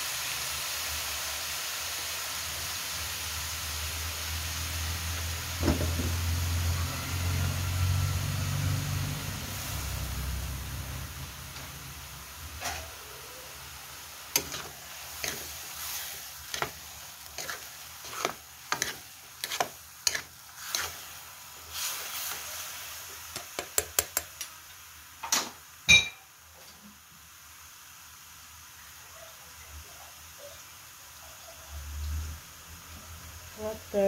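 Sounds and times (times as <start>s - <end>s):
utensil scraping metal wok: 11.4s - 24.5s.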